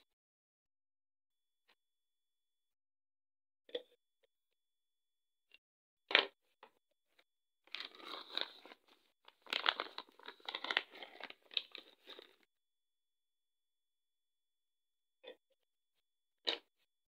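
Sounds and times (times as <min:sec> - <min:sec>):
plastic pouch crinkling: 0:07.7 - 0:12.4.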